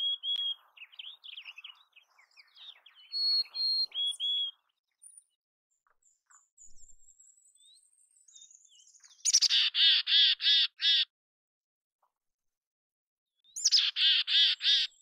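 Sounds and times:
chickadee whistled song: 0:00.0 - 0:05.3.

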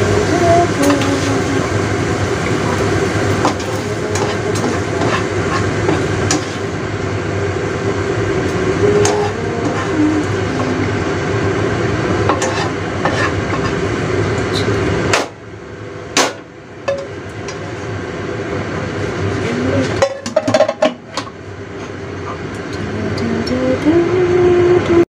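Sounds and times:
meat and mushrooms sizzling: 0:00.0 - 0:15.2
spatula clicking and scraping pan: 0:03.4 - 0:06.6, 0:12.3 - 0:13.8.

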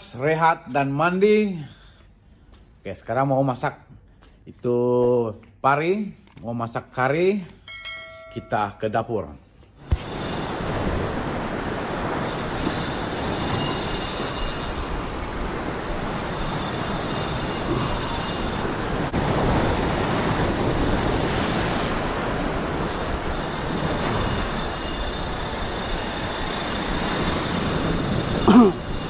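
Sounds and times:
wind rumbling on microphone: 0:09.9 - 0:29.0.

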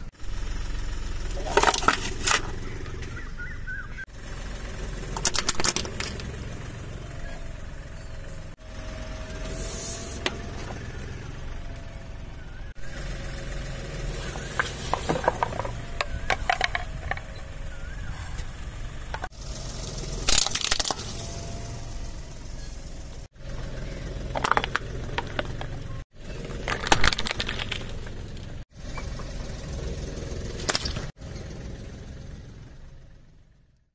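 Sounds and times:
engine and tire rumble: 0:00.0 - 0:33.9
plastic toys cracking and crunching: 0:20.2 - 0:21.1, 0:26.4 - 0:28.2.

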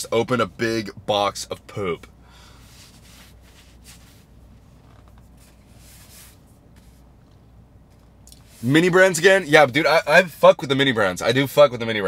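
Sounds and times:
low steady hum: 0:00.0 - 0:12.0
rustling and handling noises: 0:02.7 - 0:08.8.

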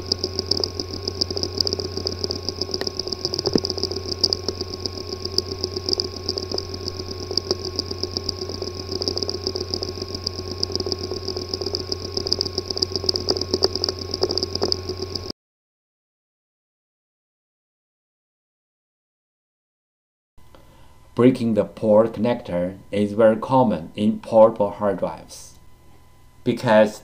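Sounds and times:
hard drive clicking: 0:00.0 - 0:15.3
hard drive hum and whine: 0:00.0 - 0:15.3, 0:20.4 - 0:27.0.

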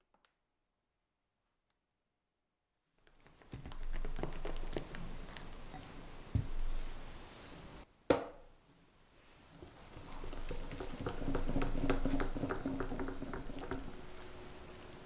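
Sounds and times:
soft swishing of whisked cream: 0:03.1 - 0:07.9, 0:09.1 - 0:15.0.

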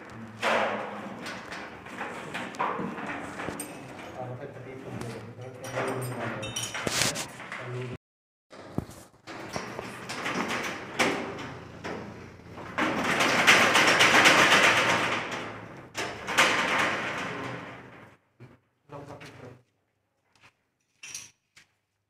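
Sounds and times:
metal rolling shutter rattling: 0:00.2 - 0:04.7, 0:08.6 - 0:18.2.

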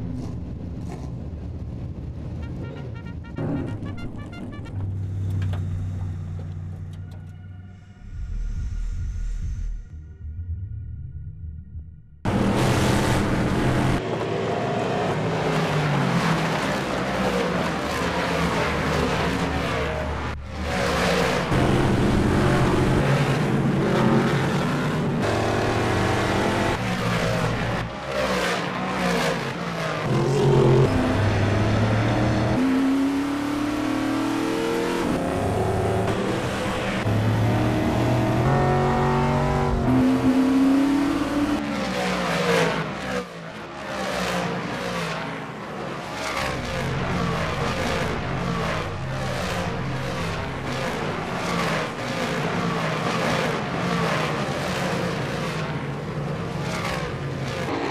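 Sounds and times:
race car engines passing: 0:12.3 - 0:57.9.

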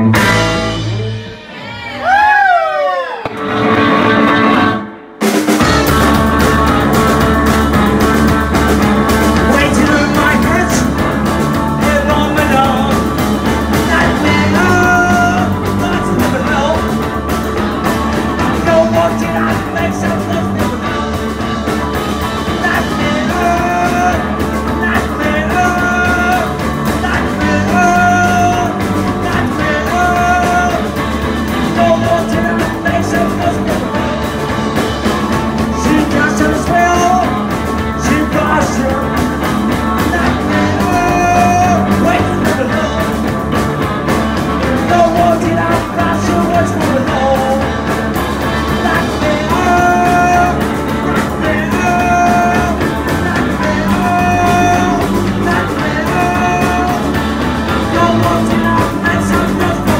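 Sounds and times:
rock band playing: 0:00.0 - 0:59.9
man singing into a microphone: 0:09.4 - 0:11.0, 0:11.8 - 0:17.0, 0:18.3 - 0:21.5, 0:22.4 - 0:34.4, 0:35.6 - 0:39.3, 0:40.0 - 0:43.4, 0:44.6 - 0:59.9.

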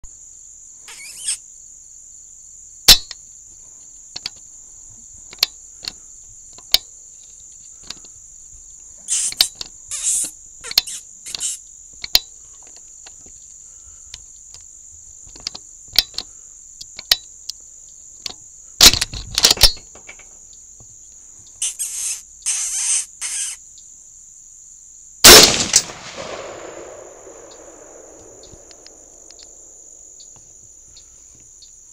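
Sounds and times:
night insects chorus: 0:00.0 - 0:31.9
bursts of hissing noise: 0:00.8 - 0:01.4, 0:09.0 - 0:11.7, 0:21.6 - 0:23.6
sharp clicks: 0:09.1 - 0:13.2, 0:21.6 - 0:23.6, 0:25.2 - 0:30.4.

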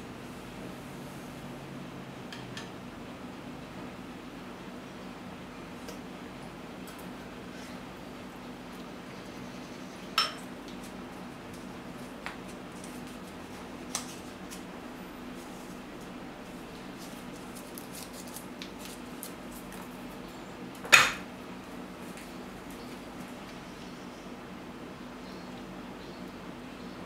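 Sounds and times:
steady low hum: 0:00.0 - 0:27.0
kitchenware clinking: 0:10.2 - 0:10.5.

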